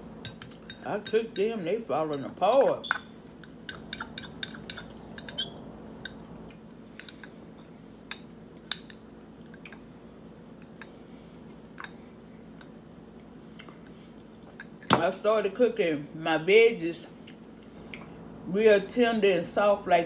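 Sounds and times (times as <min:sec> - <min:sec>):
fork clinking in a bowl: 0:00.2 - 0:01.5, 0:02.1 - 0:06.2.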